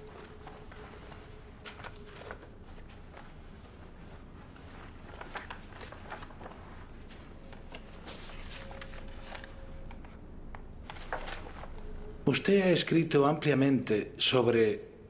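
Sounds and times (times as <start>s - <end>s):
paper pages rustling: 0.0s - 12.0s.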